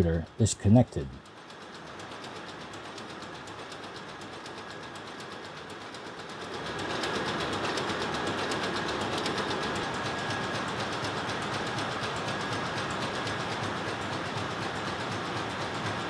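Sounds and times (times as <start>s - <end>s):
thin steady whine: 0.0s - 1.2s.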